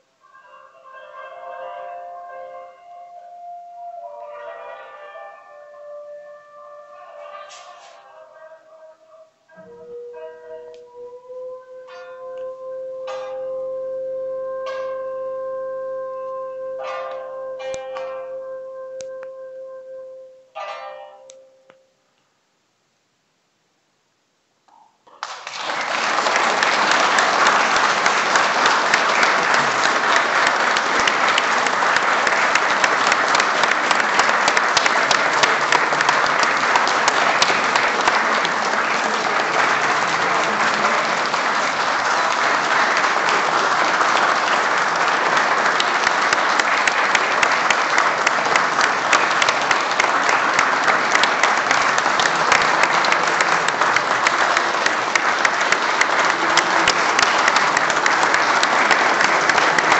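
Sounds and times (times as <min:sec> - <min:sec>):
audience applauding: 0:03.5 - 0:08.2, 0:25.1 - 0:59.9.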